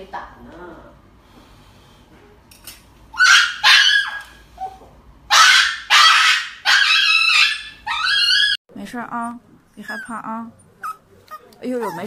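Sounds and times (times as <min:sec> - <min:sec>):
small dog yelping: 0:03.1 - 0:08.6, 0:09.8 - 0:12.0.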